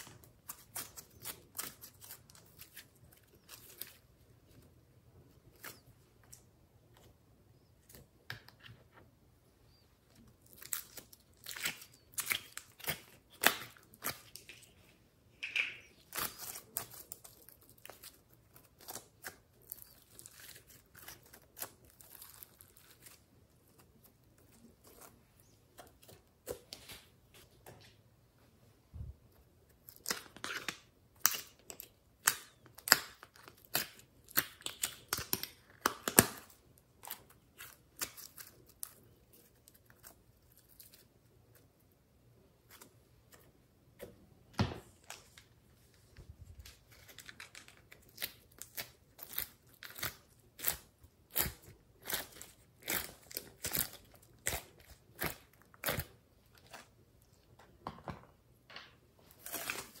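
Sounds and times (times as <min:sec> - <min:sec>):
sticky slime crackling and popping: 0:29.8 - 0:41.1, 0:47.0 - 0:56.9.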